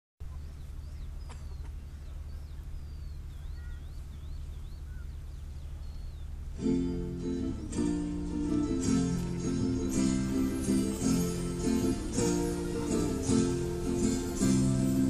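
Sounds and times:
faint bird chirps: 0.2 - 6.6
steady low rumble: 0.2 - 15.0
strummed acoustic guitar: 6.6 - 15.0.

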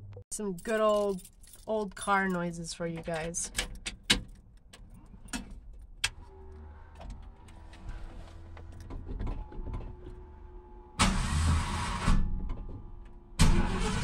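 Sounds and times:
engine firing: 11.0 - 12.4, 13.4 - 14.0
starter cranking engine: 13.4 - 14.0.

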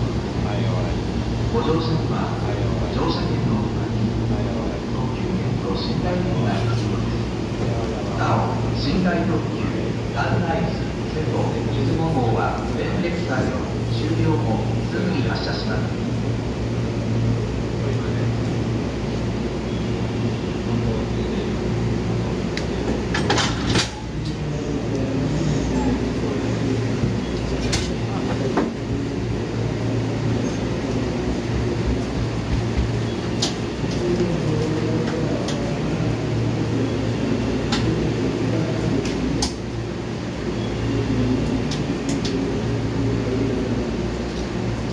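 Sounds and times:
train couplers clunk: 22.6 - 24.4, 27.0 - 28.8.

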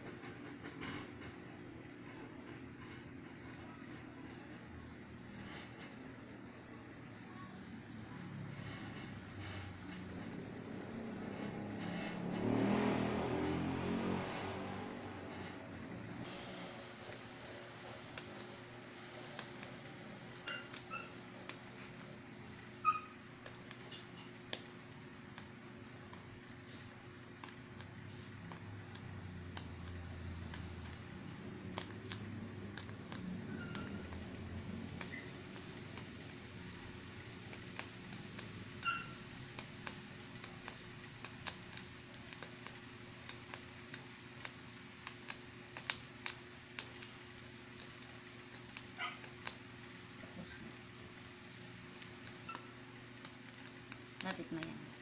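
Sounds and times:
paper and cloth handling clicks: 20.4 - 49.7.

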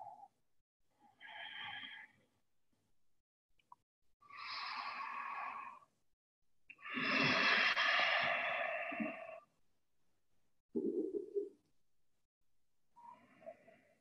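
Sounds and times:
person breathing deeply: 6.8 - 9.5.

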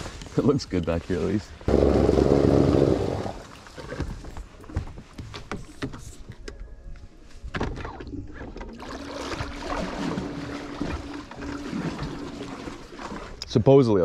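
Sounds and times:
water sloshing along hull: 1.1 - 4.8, 7.5 - 14.0.

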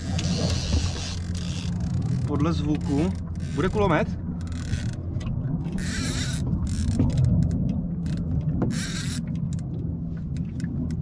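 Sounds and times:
fishing reel drag buzzing: 0.0 - 3.8, 4.4 - 5.0, 5.8 - 6.9, 8.7 - 9.2
steady low hum: 0.0 - 11.0.

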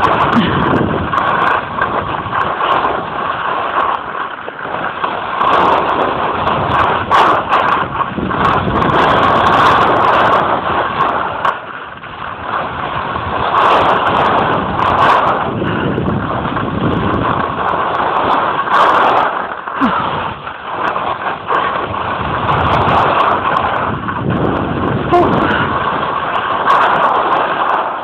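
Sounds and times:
skis scraping on snow: 0.0 - 28.0
wind on microphone: 0.0 - 28.0.

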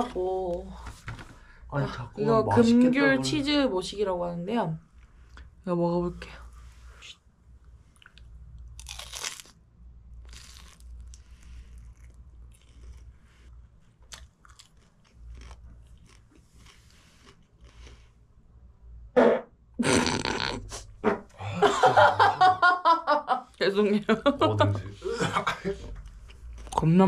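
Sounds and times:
biting and chewing crisp snack: 8.0 - 9.6, 10.2 - 18.0
loud fart: 19.2 - 21.3.

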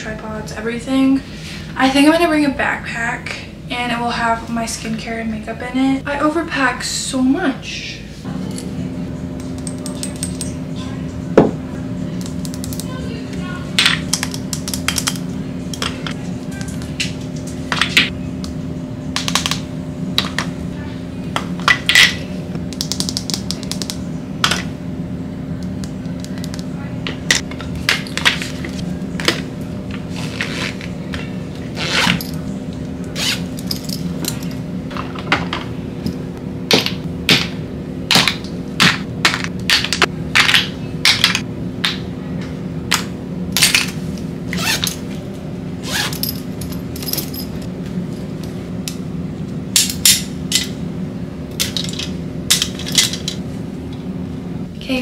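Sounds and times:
steady low hum: 0.0 - 55.0.

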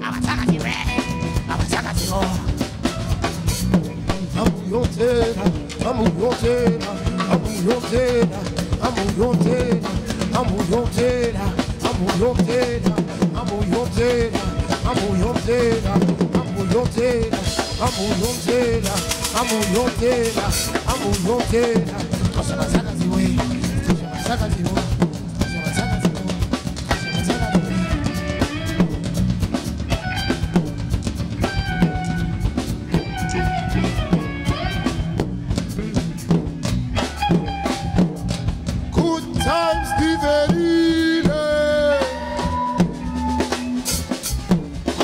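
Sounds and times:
drum kit beat: 0.0 - 45.0
electric bass guitar: 0.0 - 45.0.

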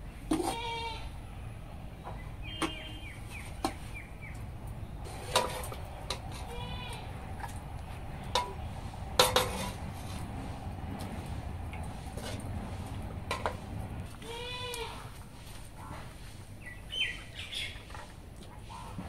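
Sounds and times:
goat bleating: 0.4 - 1.1, 6.4 - 7.2, 14.2 - 15.1
ladle clinking against wok: 8.2 - 10.2.

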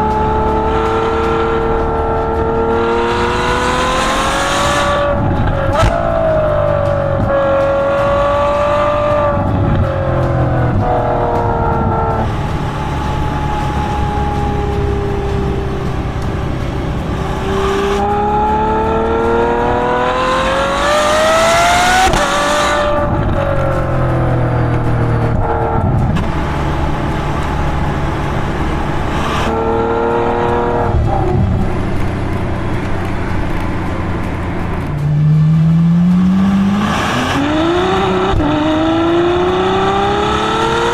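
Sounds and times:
car exhaust revving: 0.0 - 40.9.

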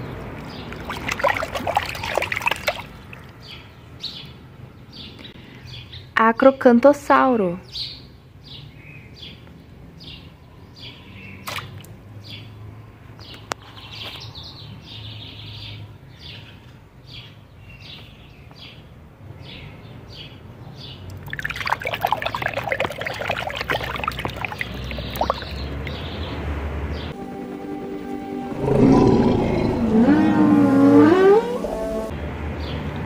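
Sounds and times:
water splashing in tub: 0.4 - 3.4, 11.4 - 11.9, 21.1 - 26.1
bird chirping: 27.0 - 32.1.

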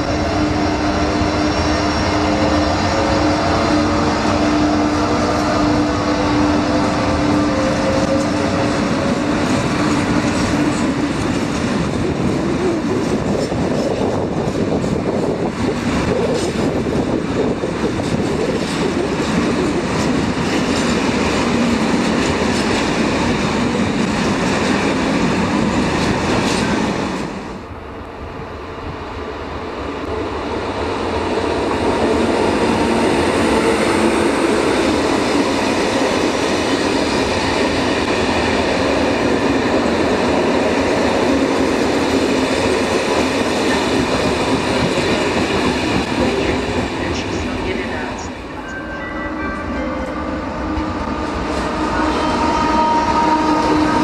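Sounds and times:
freight train wheels clattering: 0.0 - 27.4
passenger train rolling past: 0.0 - 54.0.

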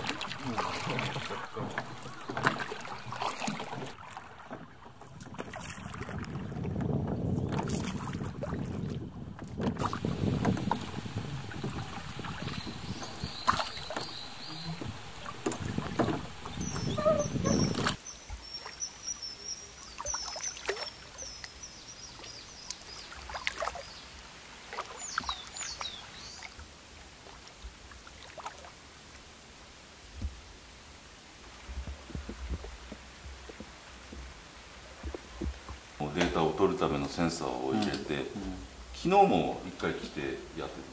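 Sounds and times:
water noise from moving boat: 0.0 - 40.9
wind on microphone: 5.0 - 18.0
high bird chirps: 12.3 - 20.6.

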